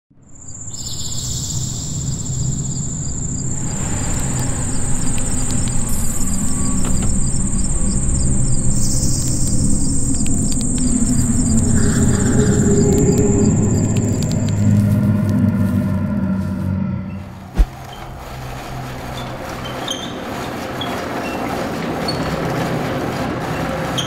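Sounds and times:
crickets chirping: 0.2s - 20.0s
low rumble: 3.3s - 19.7s.

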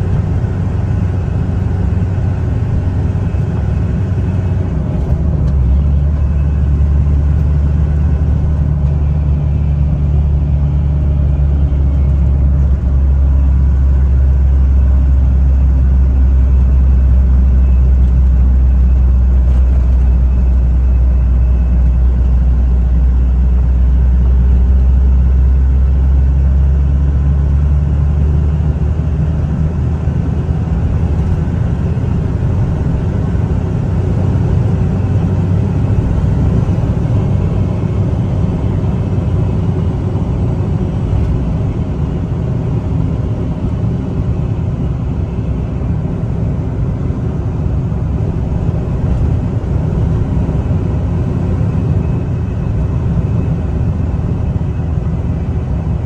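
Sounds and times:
diesel truck engine drone: 0.0s - 56.0s
tyre and road noise: 0.0s - 56.0s.

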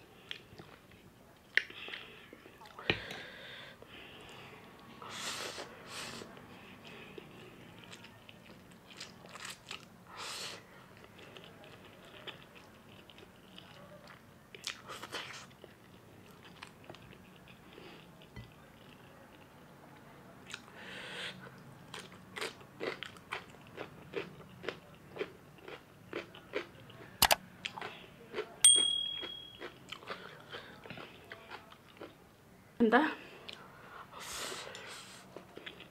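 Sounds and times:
electronic ding: 28.7s - 29.6s.

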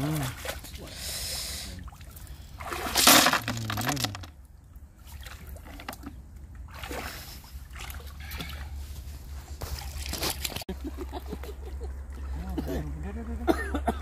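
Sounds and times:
water splashing and dripping: 0.0s - 1.1s, 1.7s - 13.5s
snail shells clattering in bucket: 2.9s - 4.3s.

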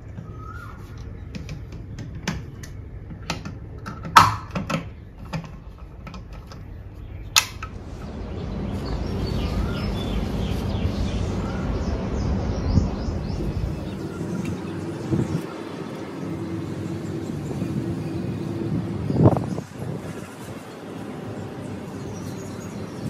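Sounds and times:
low background rumble: 6.5s - 23.0s.

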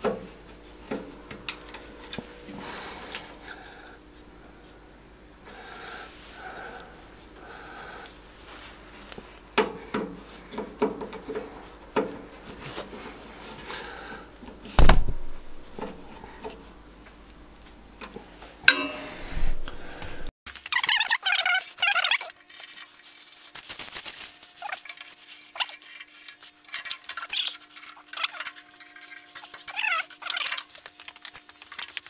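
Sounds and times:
louder thump: 14.8s - 15.7s.

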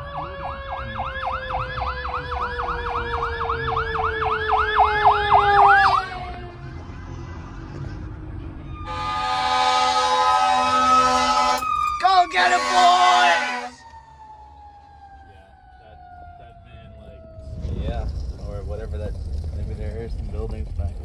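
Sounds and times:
fire engine siren yelp: 0.0s - 17.7s
low siren tone sliding down: 0.0s - 18.2s
air horn blast: 8.9s - 11.7s, 12.3s - 13.9s.

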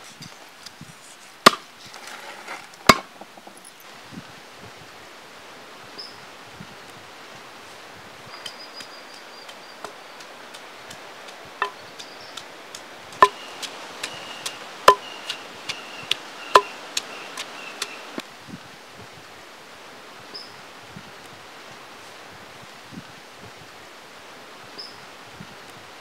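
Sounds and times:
pestle pounding in stone mortar: 11.6s - 17.9s.

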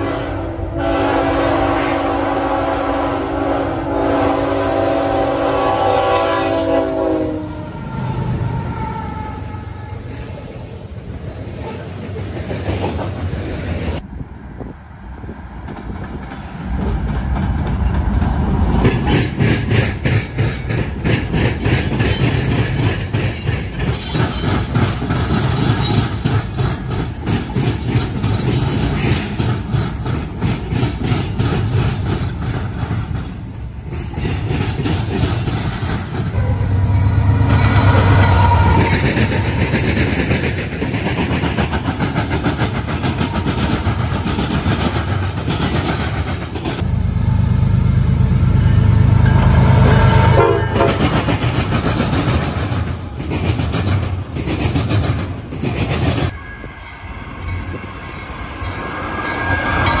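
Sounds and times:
train horn: 0.0s - 10.1s, 36.3s - 39.4s, 48.6s - 51.3s, 56.3s - 60.0s
train wheels clattering: 15.6s - 36.4s, 37.2s - 46.9s, 48.9s - 56.4s.

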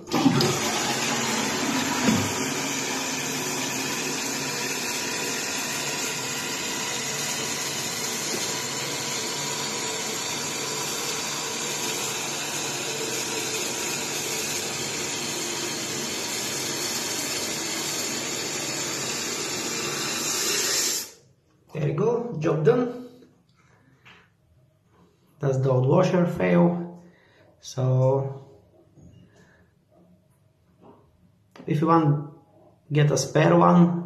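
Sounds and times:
toilet cistern refilling: 0.0s - 21.1s
toilet flush: 0.0s - 21.2s.

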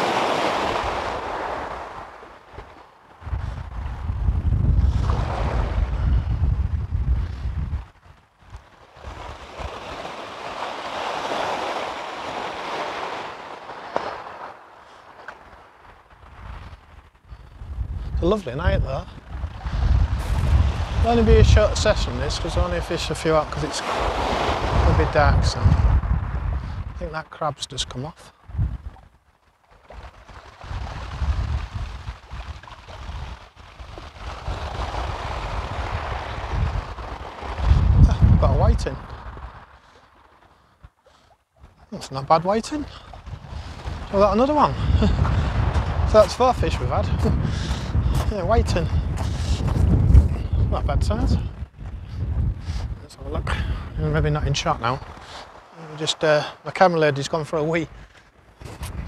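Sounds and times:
wave washing up shingle beach: 0.0s - 3.9s, 4.8s - 6.2s, 8.4s - 16.8s, 18.3s - 27.2s, 29.8s - 40.5s, 41.9s - 49.9s, 53.0s - 58.1s
wind buffeting microphone: 0.0s - 27.4s, 28.3s - 59.0s.

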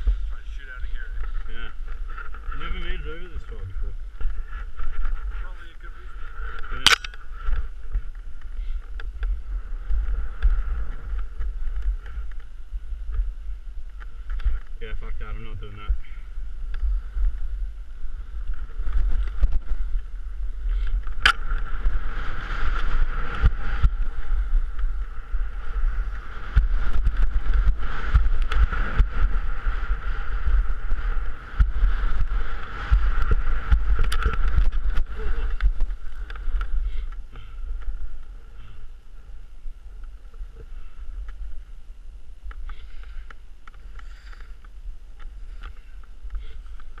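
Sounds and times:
wind buffeting microphone: 0.0s - 47.0s
skis scraping on snow: 18.2s - 38.8s.

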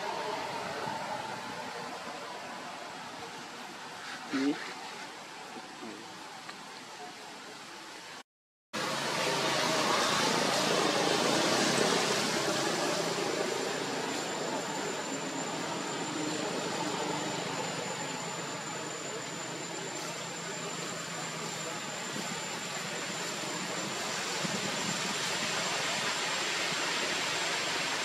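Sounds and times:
faint high whine: 8.8s - 28.0s.

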